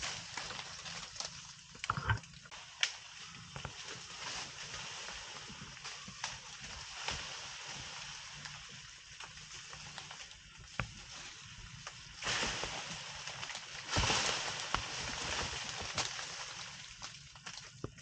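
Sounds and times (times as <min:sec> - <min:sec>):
sharp snaps and cracks: 0:00.0 - 0:04.0, 0:11.8 - 0:18.0
rustling vegetation: 0:00.0 - 0:18.0
steady hiss: 0:00.0 - 0:18.0.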